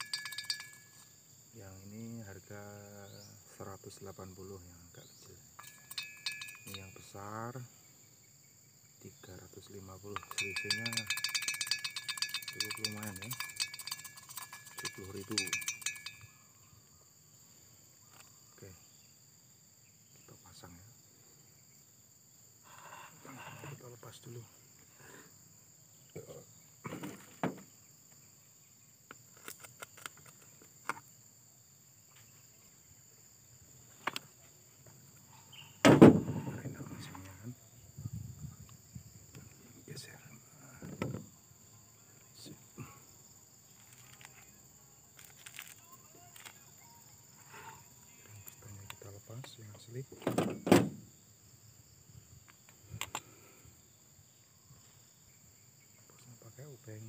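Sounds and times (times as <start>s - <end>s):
high-pitched insect drone: 0.0s - 57.0s.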